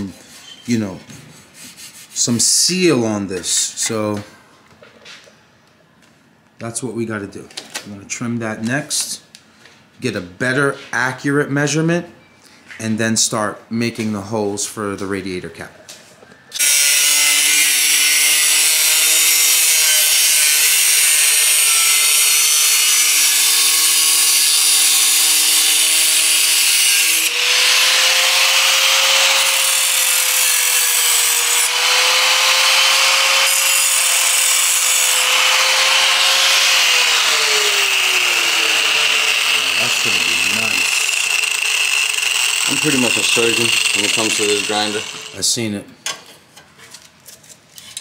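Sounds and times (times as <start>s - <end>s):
angle grinder cutting steel: 16.6s - 45.7s.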